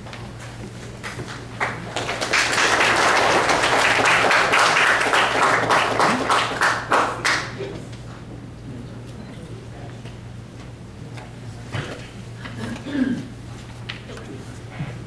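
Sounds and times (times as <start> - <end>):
audience applauding: 0.9 - 7.6.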